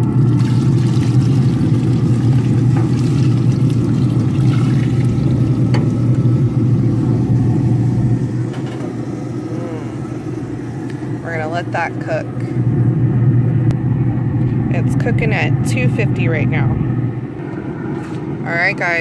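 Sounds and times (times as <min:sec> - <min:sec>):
grill fan humming: 0:00.0 - 0:19.0
broth pouring into a pot: 0:00.1 - 0:11.5.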